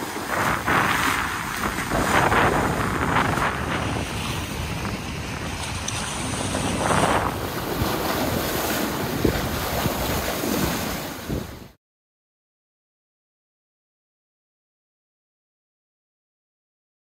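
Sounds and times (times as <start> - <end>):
sea water rushing past boat: 0.0 - 11.8
wind buffeting microphone: 0.0 - 11.8.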